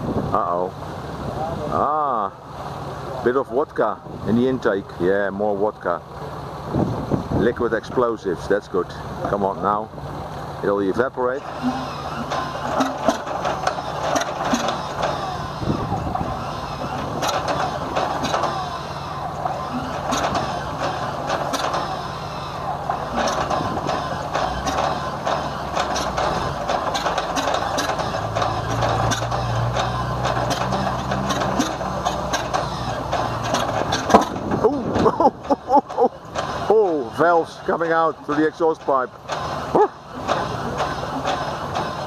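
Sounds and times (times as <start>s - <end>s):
engine starter cranking: 10.6s - 42.0s.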